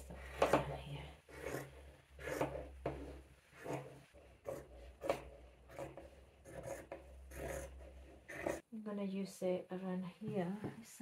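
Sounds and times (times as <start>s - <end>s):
scissors snipping fabric: 0.3s - 8.6s.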